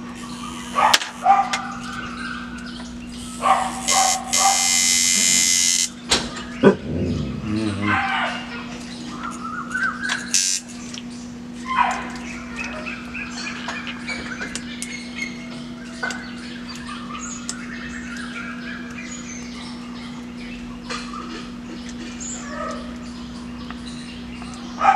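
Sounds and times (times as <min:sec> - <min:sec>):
tattoo machine buzzing: 0:00.0 - 0:01.3, 0:03.1 - 0:06.0, 0:10.3 - 0:10.7
birds chirping and squawking: 0:00.0 - 0:24.9.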